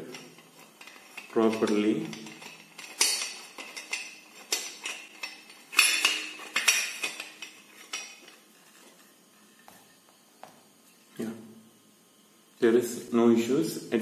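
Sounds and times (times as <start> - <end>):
metal clinking and knocking: 0.0 - 9.8.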